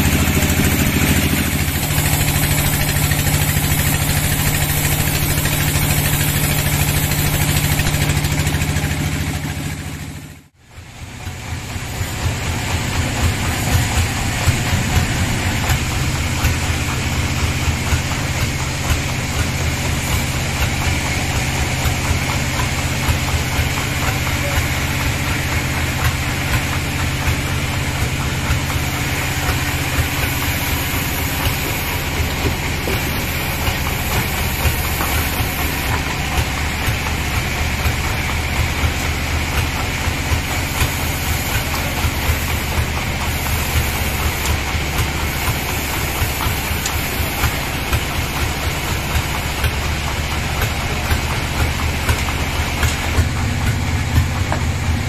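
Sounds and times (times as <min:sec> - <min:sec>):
sawmill engine humming: 0:00.0 - 0:55.0.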